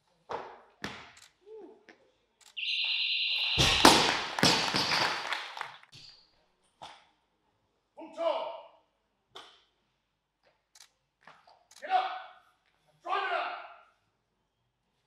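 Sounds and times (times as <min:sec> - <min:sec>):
high electronic beep: 0:02.6 - 0:04.1.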